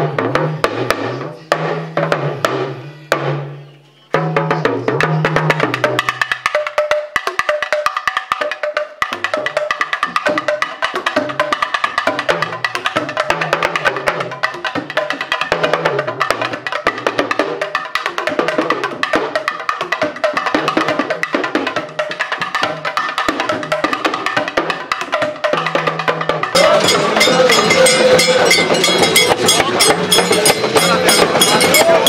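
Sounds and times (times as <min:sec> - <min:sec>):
clicking percussion intro music: 0:26.4 - 0:32.0.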